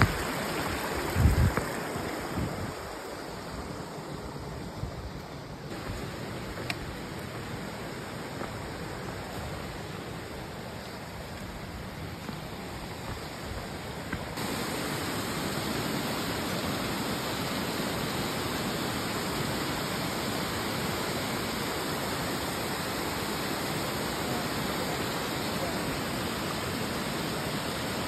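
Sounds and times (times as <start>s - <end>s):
stream rushing over rocks: 0.0s - 28.0s.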